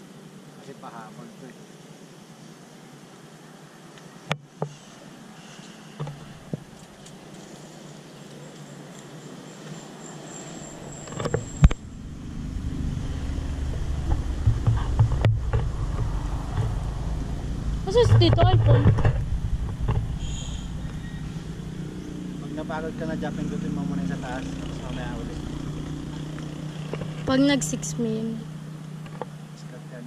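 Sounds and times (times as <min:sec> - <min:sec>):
wind buffeting microphone: 0:10.8 - 0:22.4
handling knocks and clicks: 0:13.7 - 0:16.8.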